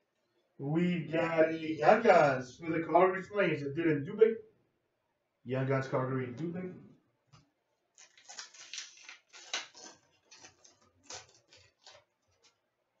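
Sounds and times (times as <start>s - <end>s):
cards flicking and rustling: 8.0s - 12.6s.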